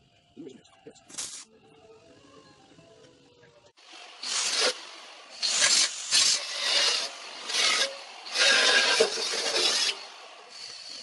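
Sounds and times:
spray paint can hissing: 0:01.2 - 0:01.5, 0:04.2 - 0:10.0.

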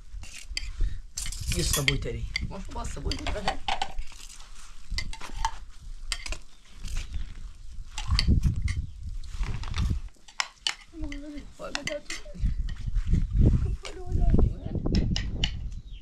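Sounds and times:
hard objects clinking: 0:00.2 - 0:07.2, 0:09.7 - 0:12.8.

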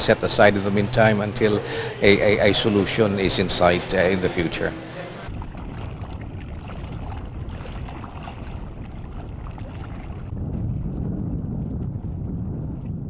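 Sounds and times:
open sea ambience: 0:00.0 - 0:13.0
wind rumble on microphone: 0:05.3 - 0:13.0.

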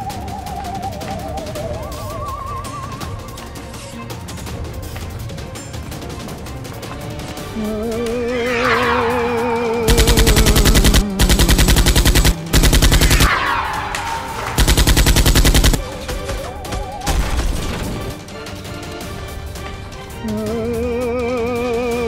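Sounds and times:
background music: 0:00.0 - 0:22.0
falling whistling sweep: 0:07.6 - 0:11.2, 0:12.9 - 0:14.6
automatic gunfire: 0:09.9 - 0:18.2.

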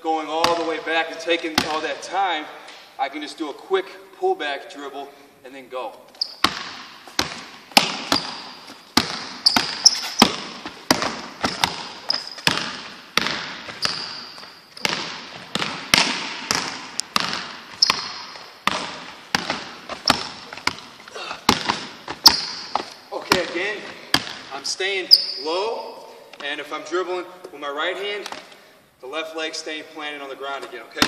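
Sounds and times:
basketball bouncing on wooden floor: 0:00.4 - 0:00.8, 0:06.2 - 0:24.5
sneaker squeaks: 0:06.0 - 0:15.9, 0:17.2 - 0:23.4, 0:24.9 - 0:26.0.

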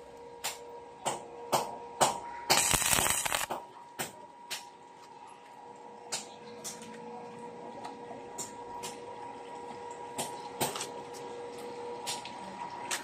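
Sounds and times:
faint steady hum: 0:00.0 - 0:13.0
welding rod tapping on steel: 0:00.5 - 0:04.7
crackling welding arc: 0:02.5 - 0:04.7.

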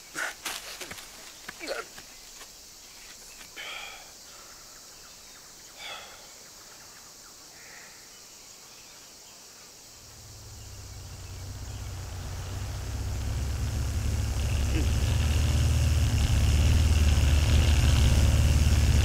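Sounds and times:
jungle ambience hiss: 0:00.0 - 0:19.0
deep rumble: 0:10.1 - 0:19.0.

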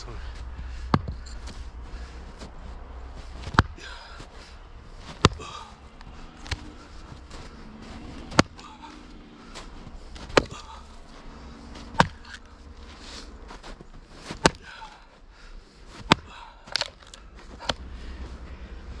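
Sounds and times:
axe chopping firewood: 0:00.9 - 0:01.2, 0:03.4 - 0:04.2, 0:05.0 - 0:06.8, 0:08.1 - 0:09.0, 0:10.1 - 0:10.9, 0:11.8 - 0:12.5, 0:14.2 - 0:15.0, 0:15.9 - 0:17.9.

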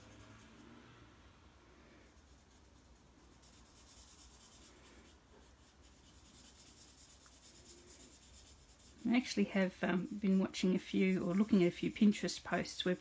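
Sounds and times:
marker nib scratching on card: 0:02.2 - 0:13.0.

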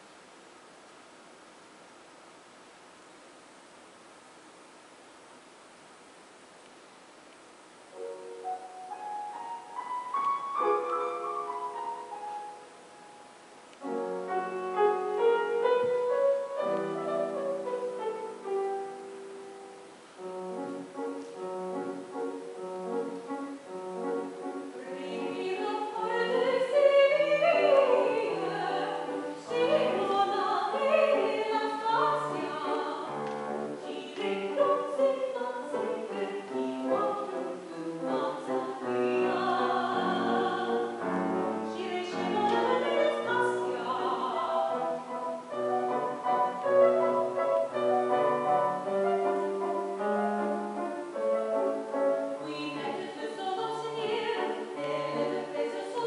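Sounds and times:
grand piano playing: 0:07.9 - 0:56.0
woman singing operatically: 0:24.7 - 0:41.0, 0:41.6 - 0:45.2, 0:52.4 - 0:56.0.

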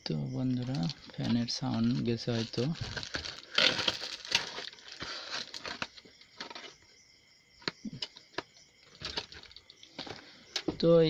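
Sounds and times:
cardboard and plastic rustling: 0:00.4 - 0:06.8, 0:08.0 - 0:10.3.

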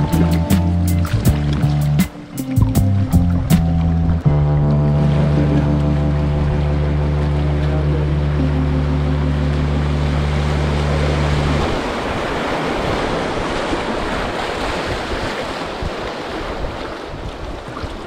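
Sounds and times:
low background music chord: 0:00.0 - 0:12.2
river water rushing and splashing: 0:00.0 - 0:18.0
wind on microphone: 0:10.1 - 0:18.0.

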